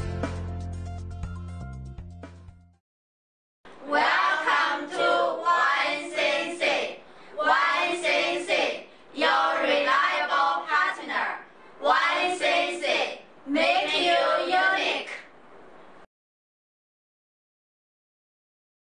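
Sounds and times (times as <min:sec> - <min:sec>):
group chanting in unison: 0:03.7 - 0:15.3.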